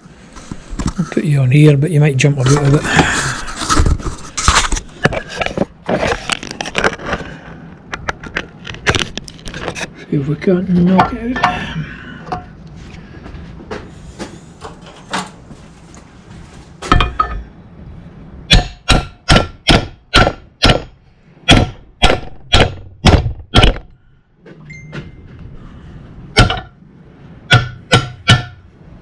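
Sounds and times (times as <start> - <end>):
hammer striking metal: 16.9 - 17.4, 18.5 - 23.9, 26.4 - 26.8, 27.5 - 28.6.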